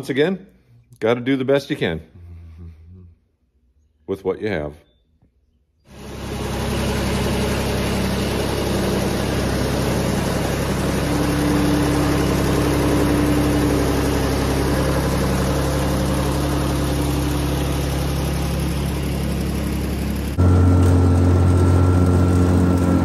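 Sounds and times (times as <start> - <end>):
diesel engine idling: 5.9 - 23.0.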